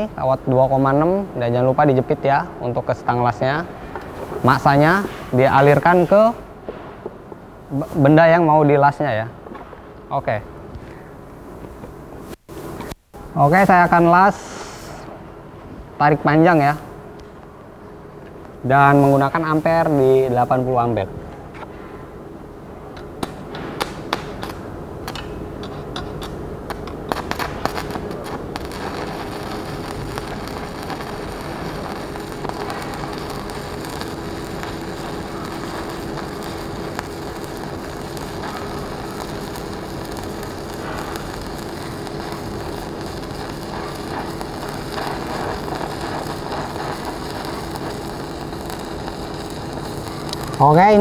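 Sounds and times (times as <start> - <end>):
welding arc crackling: 3.0 - 6.4, 23.0 - 51.0.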